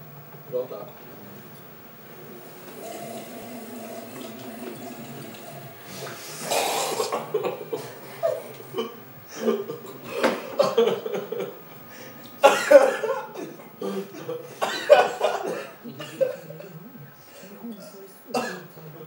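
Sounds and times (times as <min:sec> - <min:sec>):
low room murmur: 0:00.0 - 0:19.0
person coughing and spluttering: 0:06.4 - 0:10.8, 0:12.4 - 0:13.4, 0:14.6 - 0:15.8.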